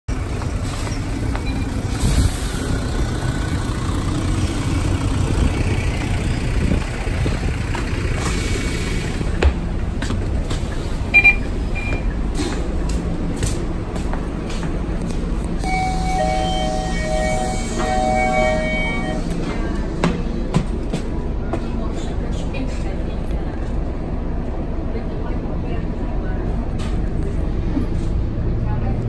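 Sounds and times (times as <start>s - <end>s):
bus diesel engine idling: 0.1s - 29.0s
short high double beep: 15.6s - 19.3s.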